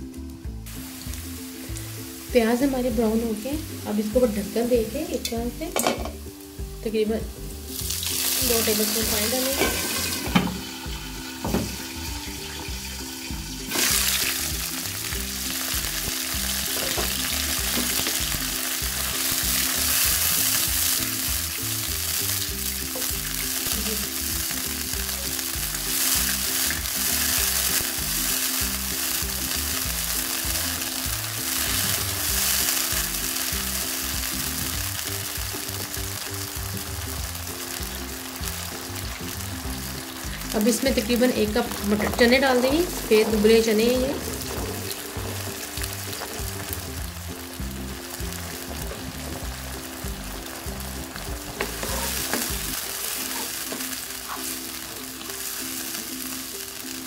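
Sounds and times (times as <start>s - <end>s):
onions sizzling in oil: 0.0s - 57.0s
spatula stirring in wok: 42.9s - 47.0s, 48.7s - 54.8s.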